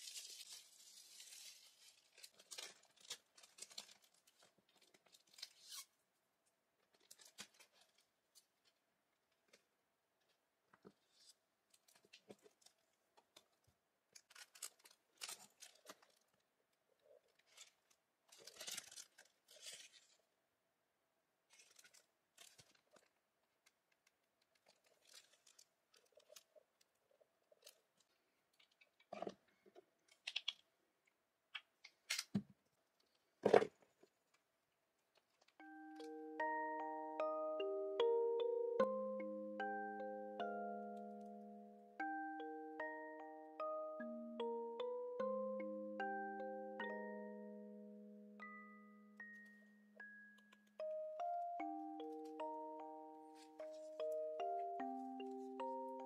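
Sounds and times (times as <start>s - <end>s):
packaging rustling and crinkling: 0.0s - 5.9s, 6.9s - 8.8s, 11.1s - 16.4s, 17.2s - 20.3s, 21.5s - 26.7s.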